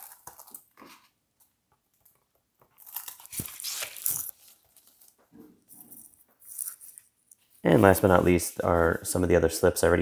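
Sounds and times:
plastic packaging crinkling: 0.0 - 1.2, 1.9 - 8.5.

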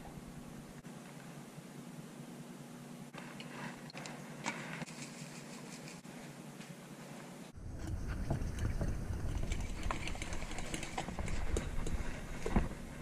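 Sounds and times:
low rumble: 7.6 - 13.0.

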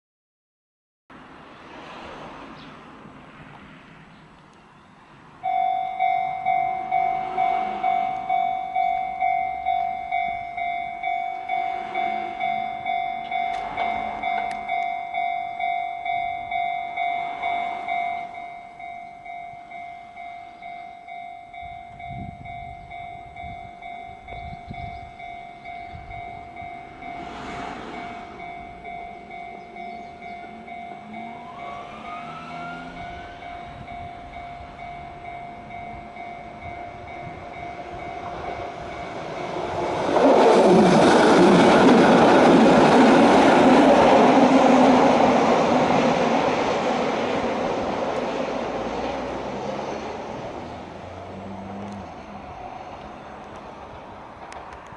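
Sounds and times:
level crossing bell dinging: 5.4 - 27.4
train wheels rumbling on rails: 5.4 - 54.9.

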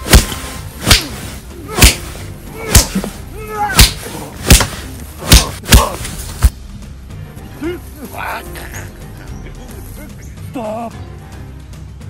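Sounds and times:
punch impacts: 0.0 - 6.5.

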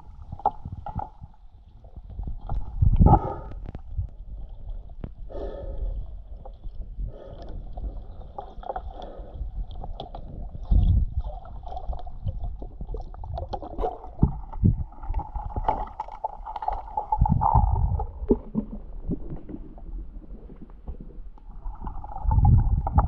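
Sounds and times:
muffled underwater water swishing: 0.0 - 23.0.

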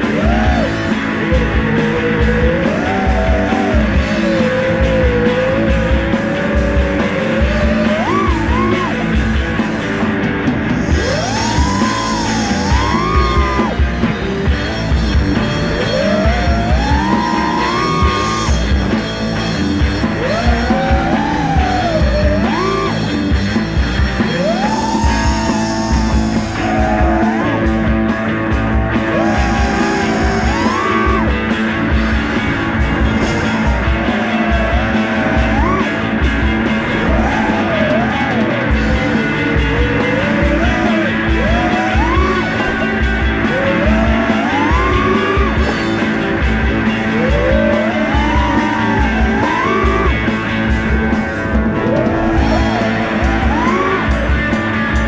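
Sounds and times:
sliding vocal or lead line: 0.0 - 9.6, 24.2 - 55.0
rock music: 0.0 - 55.0.

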